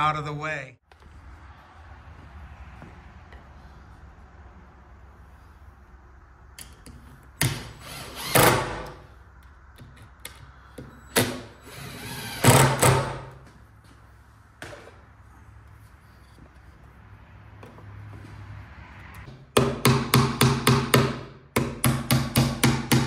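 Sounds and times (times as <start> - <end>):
cordless drill driving screws: 7.4 - 8.9, 11.6 - 12.8.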